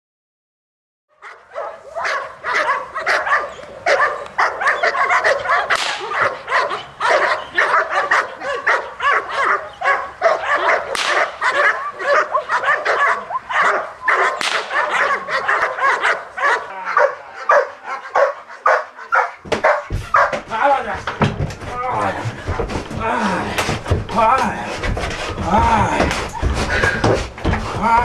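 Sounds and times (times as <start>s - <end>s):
dog barking rapidly: 1.1s - 21.2s.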